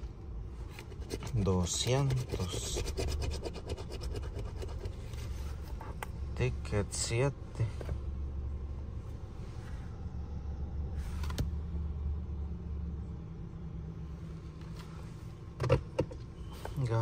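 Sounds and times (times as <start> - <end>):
low rumble: 5.0 - 15.6.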